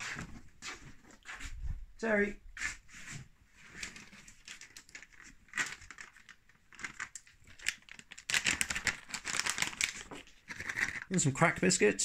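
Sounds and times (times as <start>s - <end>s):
treat bag rustling and crinkling: 3.6s - 11.3s.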